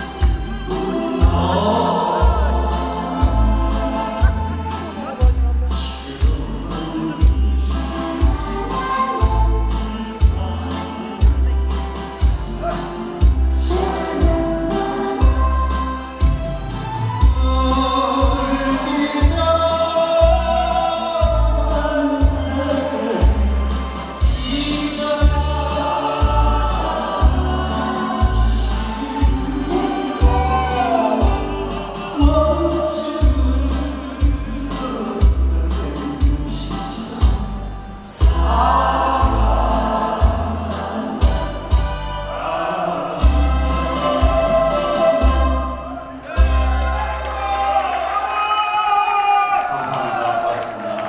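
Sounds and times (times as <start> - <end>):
choir-like vocals: 0.0 - 5.2, 5.8 - 11.4, 12.0 - 16.2, 17.3 - 37.4, 38.0 - 48.0
backing track with bass and cymbals: 0.0 - 47.8
man singing into microphone: 0.7 - 15.3, 17.2 - 41.4.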